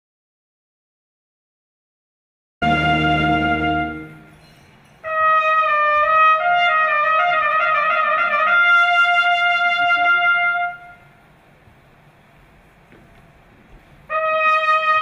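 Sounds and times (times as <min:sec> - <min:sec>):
slow solo melody: 0:02.6 - 0:04.4.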